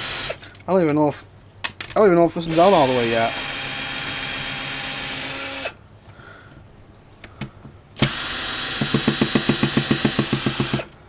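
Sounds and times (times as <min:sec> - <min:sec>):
cordless drill motor running: 0:00.0 - 0:00.4, 0:02.5 - 0:05.8, 0:08.0 - 0:11.0
drill clutch chattering: 0:08.0 - 0:11.0.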